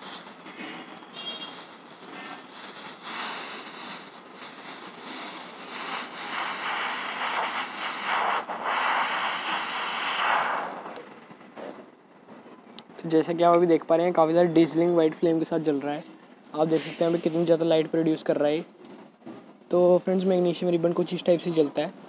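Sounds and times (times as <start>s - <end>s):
crackles: 0.0s - 11.5s
blow torch flame hissing: 2.4s - 11.3s.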